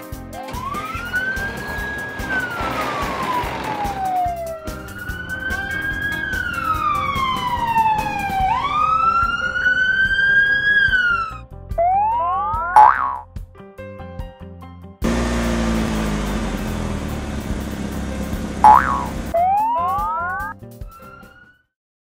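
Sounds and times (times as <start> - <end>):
background music: 0.0 - 21.6
ambulance siren wailing: 0.4 - 12.8, 15.5 - 20.5.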